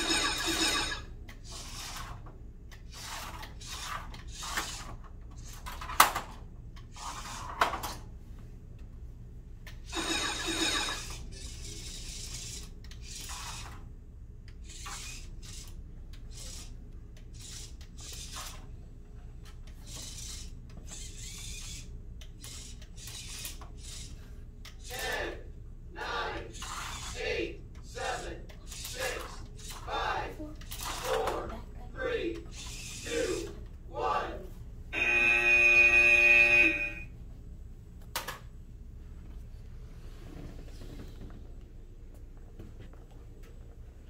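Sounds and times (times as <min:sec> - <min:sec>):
robot motors whirring: 0:00.0 - 0:05.8, 0:09.8 - 0:13.8, 0:14.6 - 0:18.7, 0:19.7 - 0:25.3, 0:26.1 - 0:31.5, 0:32.2 - 0:33.6
steady low hum: 0:00.0 - 0:44.0.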